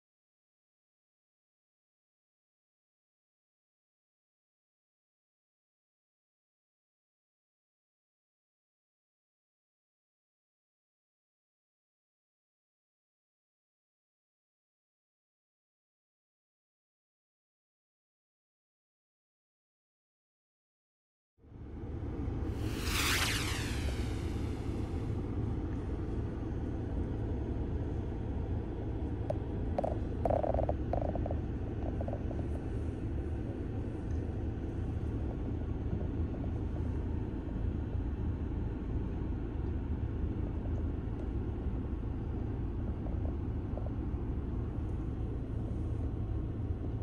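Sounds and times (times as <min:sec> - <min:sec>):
road and engine rumble in car: 0:23.9 - 0:47.0.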